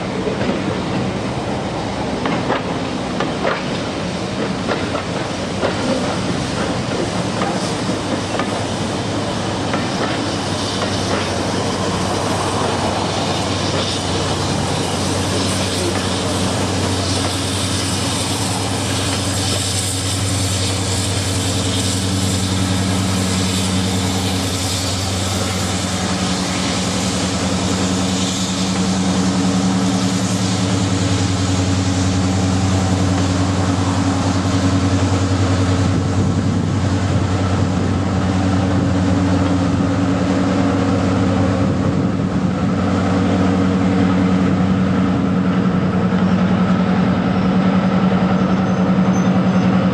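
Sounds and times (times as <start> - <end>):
hiss: 0.0 - 49.9.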